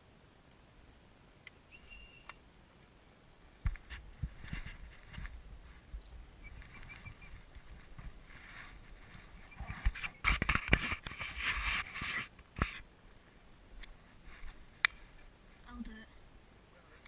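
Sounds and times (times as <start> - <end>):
faint background hiss: 0.0 - 17.0
close rustling: 3.7 - 15.7.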